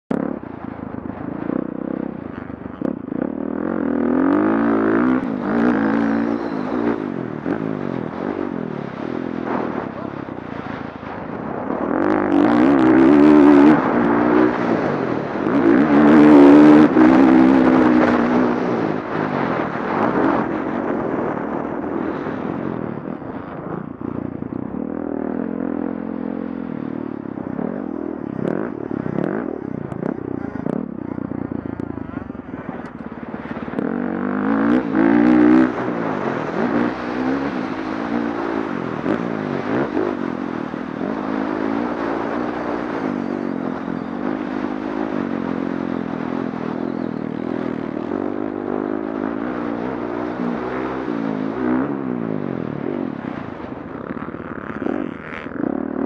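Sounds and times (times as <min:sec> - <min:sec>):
dirt bike engine revving: 0:01.3 - 0:23.1, 0:24.8 - 0:47.4.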